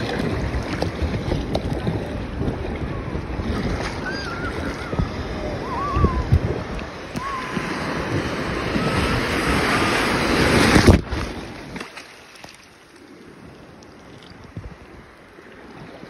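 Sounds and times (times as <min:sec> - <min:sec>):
wind buffeting microphone: 0:00.0 - 0:11.8
waves breaking in shallow surf: 0:00.0 - 0:16.0.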